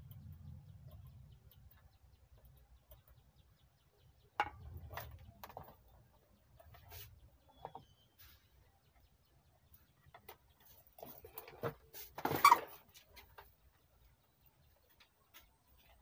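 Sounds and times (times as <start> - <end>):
wires rustling and clicking: 4.3 - 16.0.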